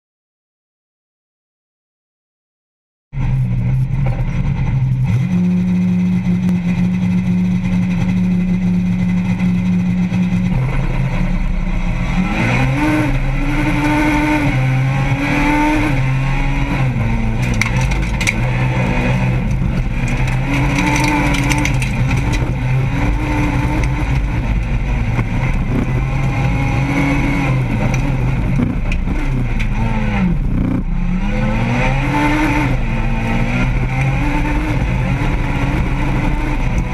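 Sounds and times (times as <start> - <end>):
race car engine accelerating: 3.2 - 36.9.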